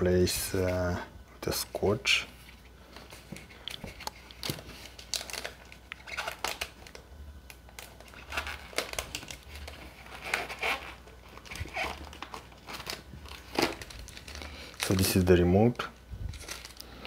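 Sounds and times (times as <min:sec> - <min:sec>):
plastic wrap crinkling: 0:02.9 - 0:17.0
packing foam rubbing and creaking: 0:08.0 - 0:15.4.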